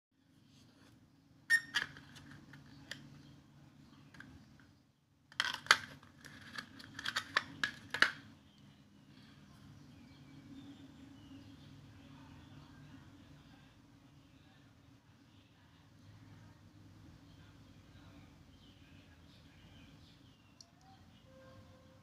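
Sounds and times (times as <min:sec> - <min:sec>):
low steady hum: 0:00.2 - 0:22.0
hard plastic clicking and scraping: 0:00.8 - 0:03.3, 0:04.1 - 0:08.3.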